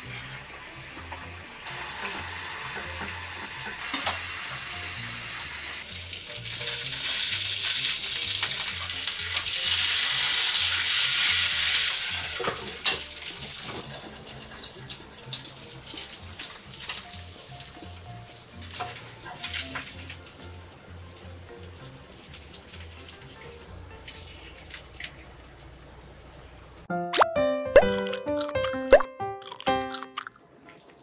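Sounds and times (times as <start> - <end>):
fish sizzling in grill pan: 0.2 - 23.3.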